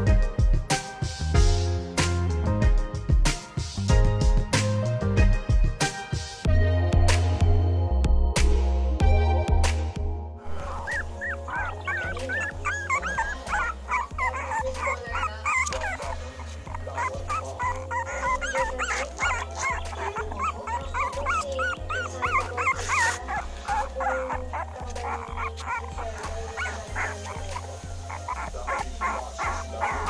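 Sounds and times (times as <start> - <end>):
background music with bass line: 0.0 - 30.0
puppies whimpering and squeaking: 10.5 - 30.0.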